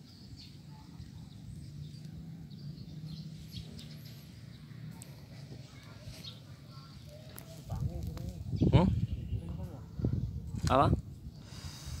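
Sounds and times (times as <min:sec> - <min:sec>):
low outdoor hum: 0:00.0 - 0:08.6
small birds chirping: 0:00.0 - 0:12.0.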